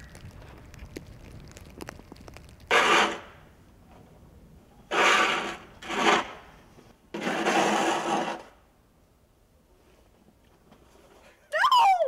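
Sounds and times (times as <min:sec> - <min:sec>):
snow shovel scraping: 0:04.9 - 0:06.3, 0:07.2 - 0:08.5.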